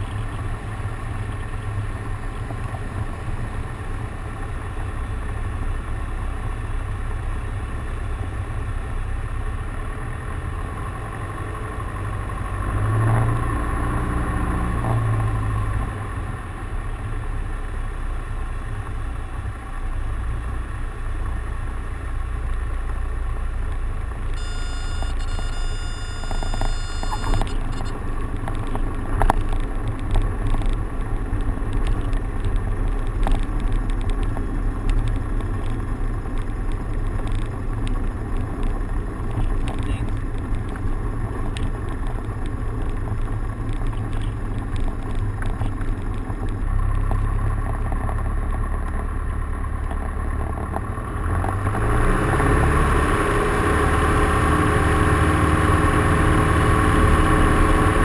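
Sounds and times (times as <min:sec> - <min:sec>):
steady high tone: 0:24.4 - 0:28.0.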